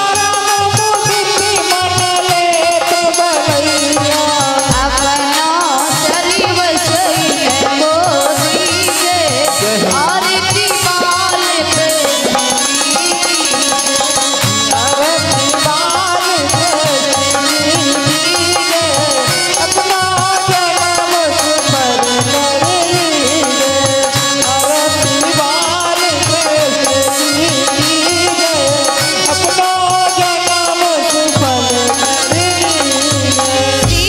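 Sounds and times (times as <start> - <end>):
hand drum rhythm: 0.0 - 34.0
wavering devotional melody: 0.0 - 34.0
dense percussion: 4.6 - 5.7.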